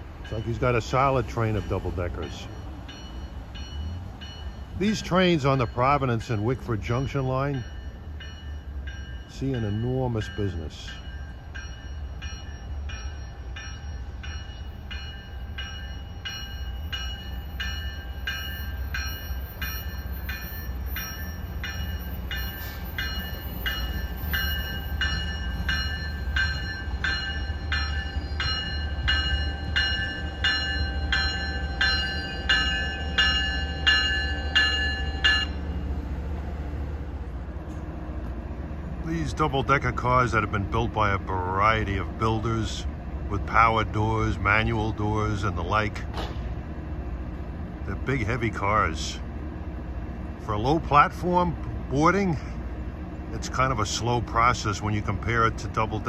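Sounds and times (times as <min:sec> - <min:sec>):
train bell ringing: 0:00.0 - 0:36.2
train rumble: 0:00.0 - 0:56.0.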